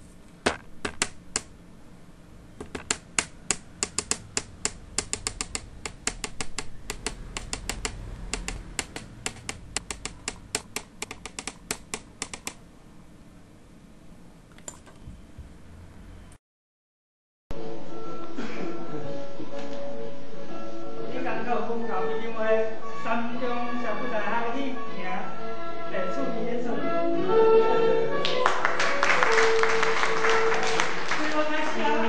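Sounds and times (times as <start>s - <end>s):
sharp rapid clicks or taps: 0.4s - 1.5s, 2.6s - 12.6s.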